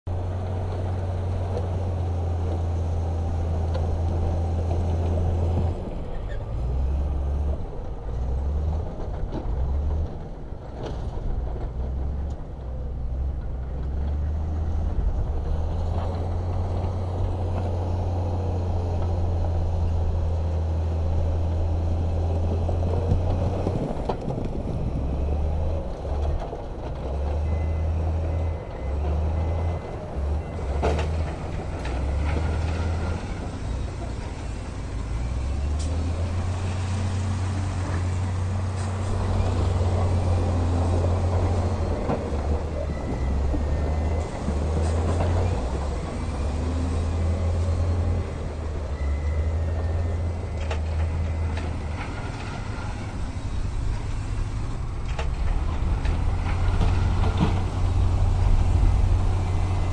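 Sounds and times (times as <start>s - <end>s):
heavy diesel engines droning: 0.1s - 59.9s
reversing alarm beeps: 42.6s - 44.9s, 48.8s - 51.6s.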